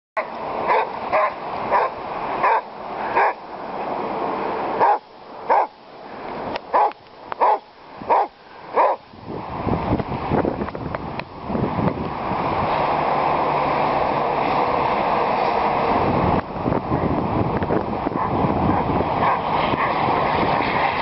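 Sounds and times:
dog barking: 0.7s - 3.4s, 4.8s - 5.7s, 6.7s - 9.0s, 18.2s - 20.0s.

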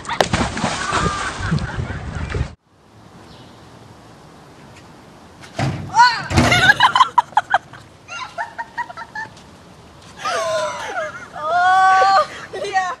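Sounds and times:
bursts of laughter: 6.5s - 9.3s.

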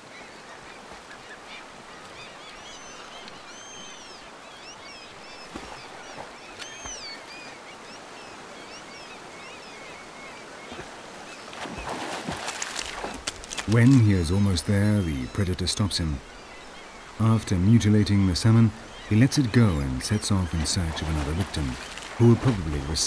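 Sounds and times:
birds calling: 0.0s - 23.0s
river rushing: 16.0s - 23.0s.

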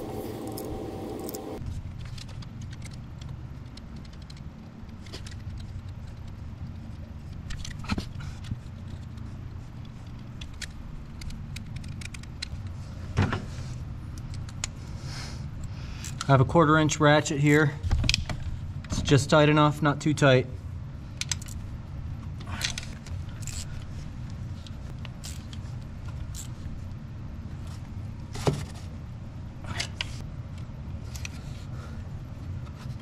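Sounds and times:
low steady hum: 0.0s - 33.0s
metallic clicks of tools handled: 21.2s - 21.6s.

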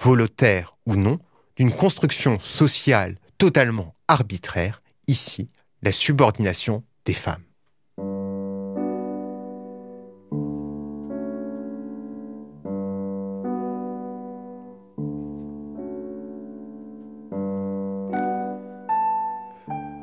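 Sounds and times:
slow piano chords: 7.9s - 20.0s.

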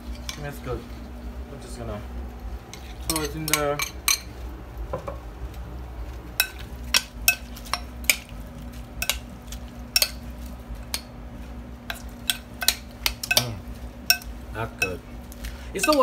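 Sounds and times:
metal spoon clinking ceramic bowl: 3.1s - 4.3s, 9.0s - 9.2s, 9.9s - 10.2s, 11.9s - 15.0s.

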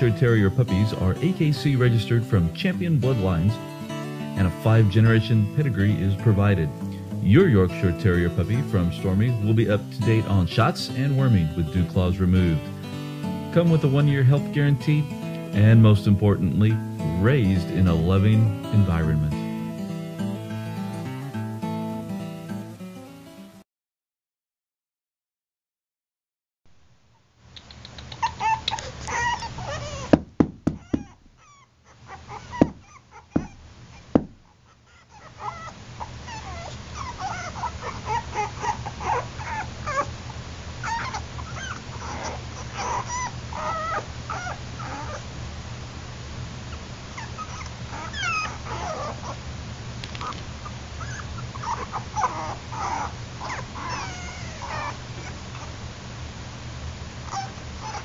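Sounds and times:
puppies whimpering and squeaking: 27.7s - 40.2s, 40.8s - 45.3s, 46.7s - 49.4s, 50.2s - 55.8s, 57.2s - 58.0s
sharp knocks: 30.1s - 31.2s, 32.6s - 33.6s, 34.2s - 34.4s.

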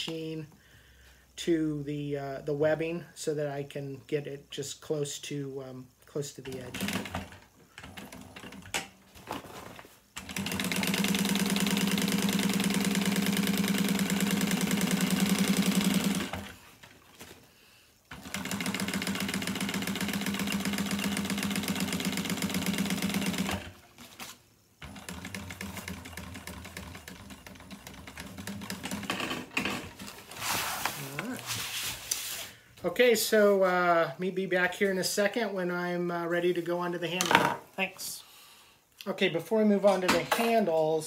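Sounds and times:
sewing machine stitching: 6.4s - 8.9s, 10.2s - 16.9s, 18.1s - 31.4s.

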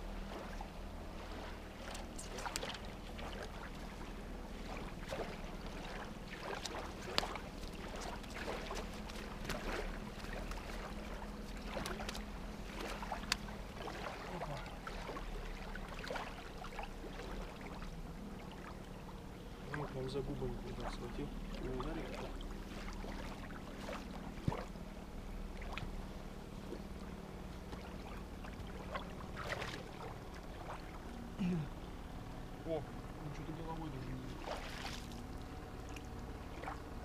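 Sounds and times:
low steady hum: 0.0s - 37.0s
fish splashing in water: 0.3s - 18.8s, 26.6s - 31.1s, 34.3s - 37.0s.

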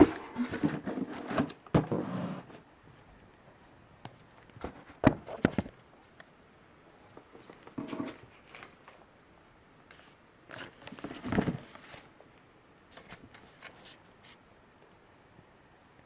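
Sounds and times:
rustle: 9.8s - 12.2s.

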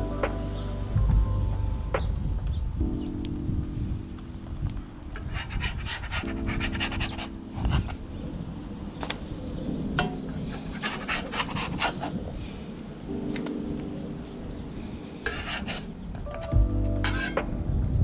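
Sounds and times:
lofi background music: 0.0s - 18.0s
metal spatula scraping griddle: 5.2s - 8.0s, 10.0s - 12.2s, 15.2s - 17.5s.

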